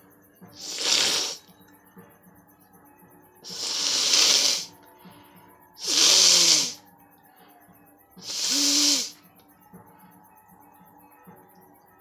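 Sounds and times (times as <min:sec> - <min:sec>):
woman blowing her nose: 0:00.6 - 0:01.4, 0:03.5 - 0:04.7, 0:05.8 - 0:06.8, 0:08.2 - 0:09.1.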